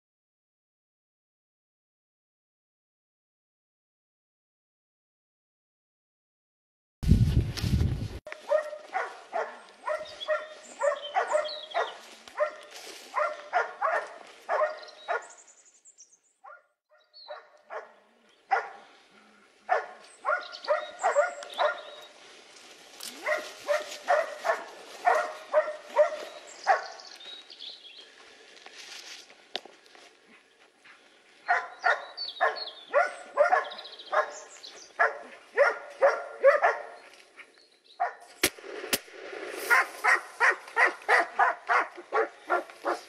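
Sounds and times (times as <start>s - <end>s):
dog barking: 8.3s - 15.4s, 16.4s - 18.9s, 19.7s - 22.0s, 23.2s - 27.0s, 31.4s - 37.0s, 38.0s - 38.2s, 39.7s - 43.0s.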